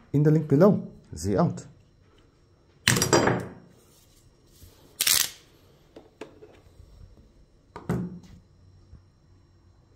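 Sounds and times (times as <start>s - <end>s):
tools clattering on a table: 2.9s - 3.6s.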